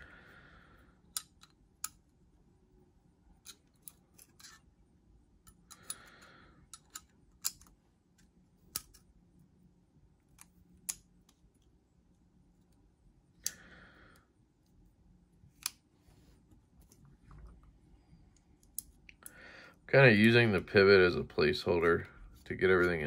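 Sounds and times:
soft handling rustle: 14.5s - 19.2s, 20.0s - 23.0s.

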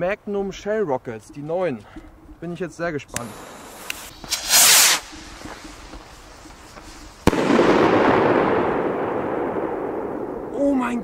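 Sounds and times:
firework rocket whoosh: 3.3s - 5.2s
firework shell bang: 7.2s - 10.3s
rumbling echo: 7.2s - 11.0s.

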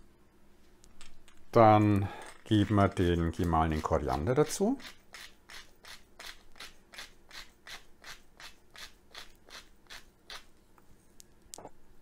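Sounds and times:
spice mill grinding seeds: 1.5s - 10.5s.

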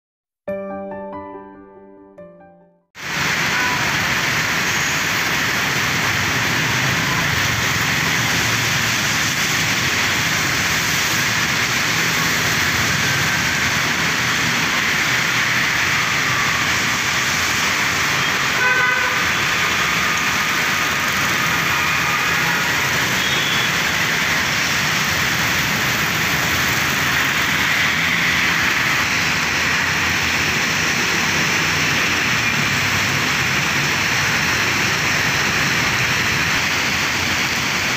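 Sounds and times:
rain hissing: 3.0s - 37.9s
tyres on wet street: 3.0s - 37.9s
vehicle horn toot: 18.6s - 19.3s, 21.7s - 23.8s.

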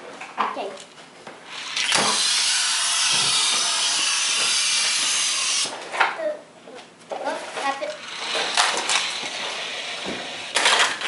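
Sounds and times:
toy car rolling on plastic track: 7.9s - 11.0s.

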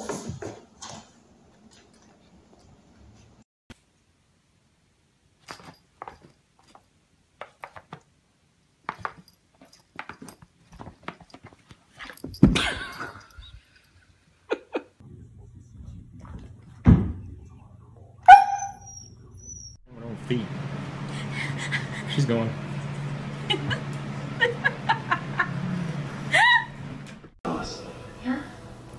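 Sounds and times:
husky yelp: 18.2s - 19.8s.

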